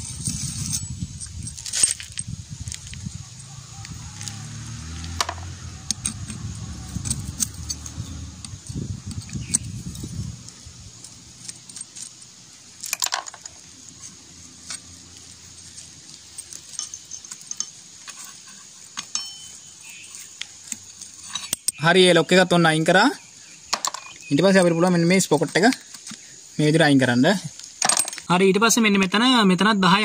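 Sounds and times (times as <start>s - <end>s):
steel tools clinking on metal: 0.0s - 22.0s, 23.4s - 26.0s, 27.7s - 28.3s.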